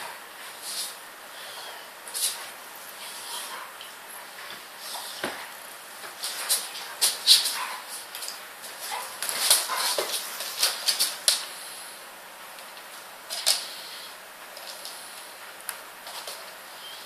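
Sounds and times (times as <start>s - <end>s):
dogs play-wrestling scuffles: 2.1s - 11.4s.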